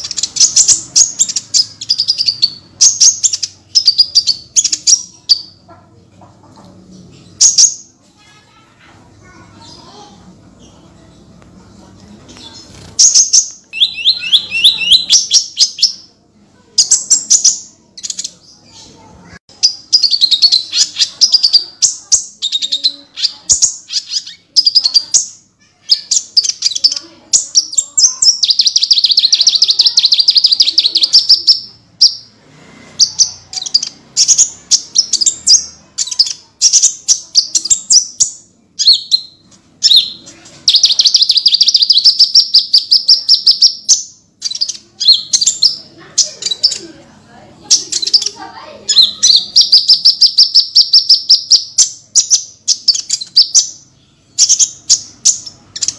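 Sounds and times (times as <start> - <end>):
sunbird singing trills: 12.8 - 16.0, 33.0 - 46.8.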